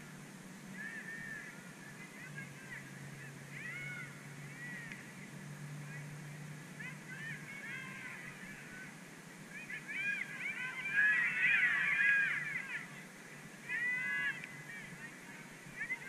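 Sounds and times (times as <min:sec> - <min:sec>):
geese honking: 0:09.6 - 0:13.0.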